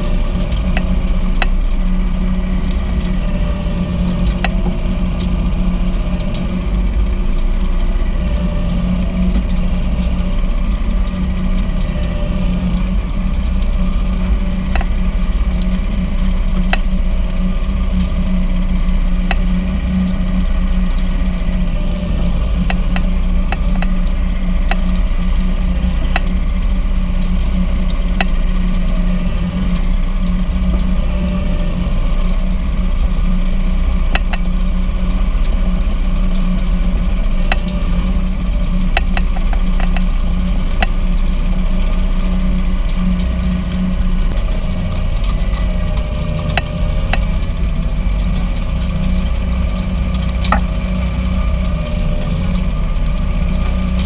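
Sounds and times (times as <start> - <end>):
tractor engine running: 0.0 - 54.0
sharp clicks: 34.1 - 34.5.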